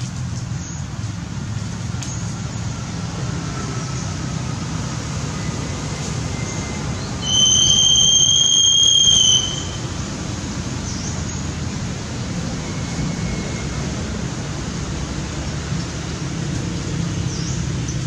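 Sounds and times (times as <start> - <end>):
high-pitched squeal: 5.4 - 10.0.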